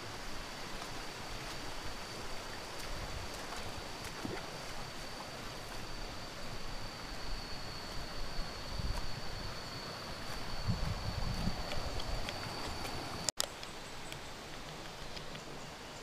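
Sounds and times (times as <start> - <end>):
stream running over rocks: 0.0 - 16.0
high whine: 1.1 - 13.4.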